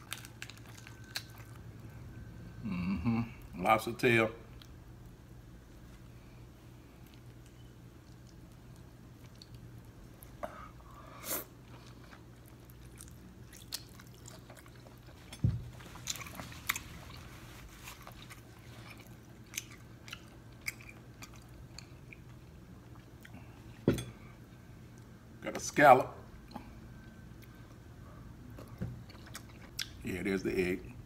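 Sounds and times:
wet chewing and lip smacks: 0:07.0 - 0:10.4, 0:11.8 - 0:15.2, 0:29.1 - 0:30.0.

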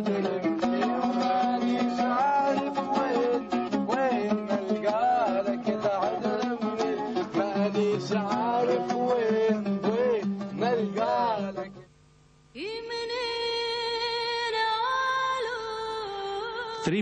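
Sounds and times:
oud plucked folk melody: 0:00.0 - 0:11.9.

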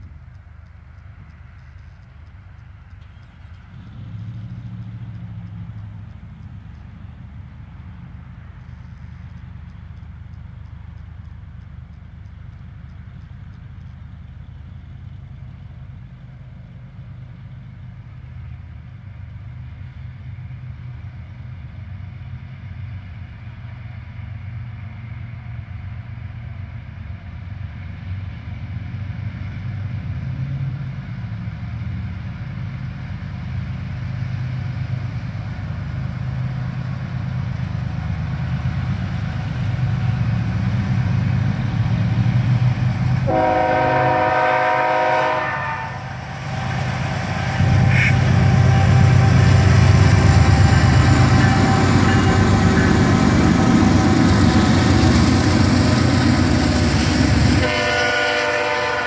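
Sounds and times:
diesel locomotive engine rumble: 0:00.0 - 0:59.0
locomotive horn blast: 0:43.2 - 0:54.4, 0:57.3 - 0:59.0.

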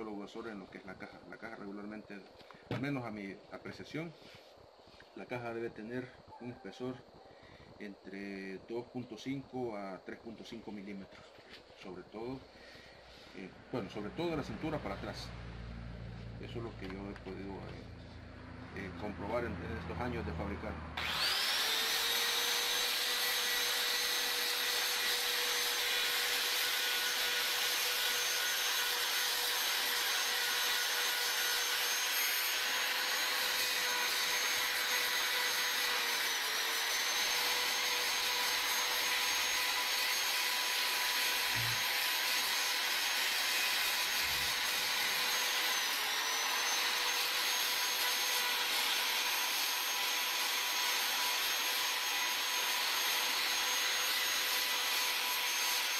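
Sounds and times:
electric rotary tool whining: 0:16.0 - 0:55.9.

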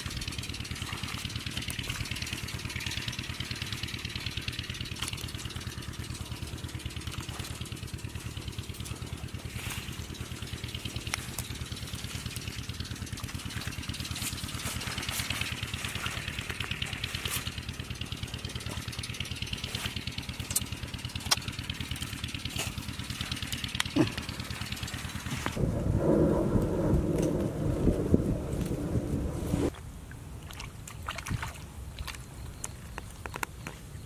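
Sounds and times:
small engine running: 0:00.0 - 0:29.7
loud rushing noise: 0:25.6 - 0:29.7.

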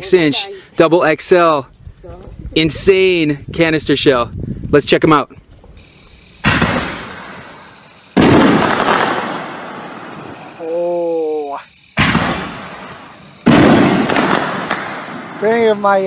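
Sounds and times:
firework shells booming: 0:05.8 - 0:10.6, 0:11.8 - 0:15.9.

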